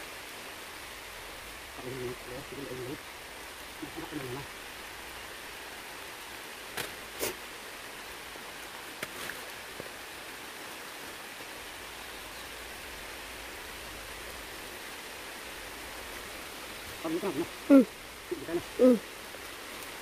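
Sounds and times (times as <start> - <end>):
steady outdoor hiss: 0.0 - 20.0
fruit snapping off tree: 6.7 - 7.0.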